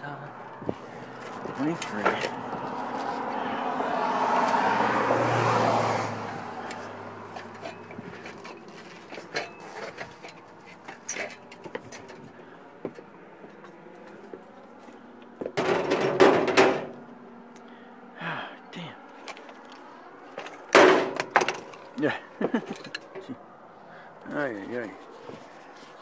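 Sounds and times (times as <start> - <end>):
footsteps on wooden deck: 0.5 - 3.3
clattering handling noise: 6.6 - 17.1, 19.1 - 23.4
footsteps on metal ladder: 6.8 - 14.5.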